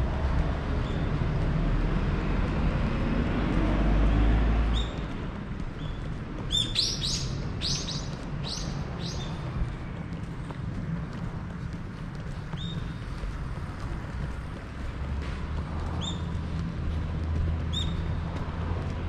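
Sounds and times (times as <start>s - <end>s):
small birds chirping: 5.8s - 9.5s.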